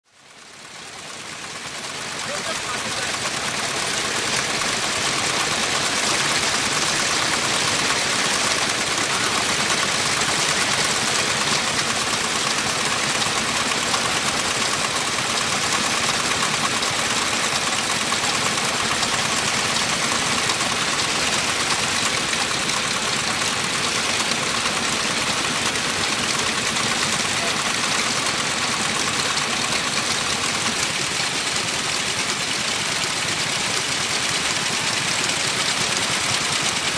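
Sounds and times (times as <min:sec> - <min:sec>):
diesel engine running: 0:00.2 - 0:36.9.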